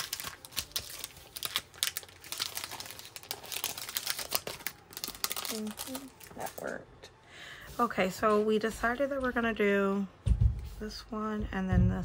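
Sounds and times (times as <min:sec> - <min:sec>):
plastic packaging crinkling: 0:00.0 - 0:06.8.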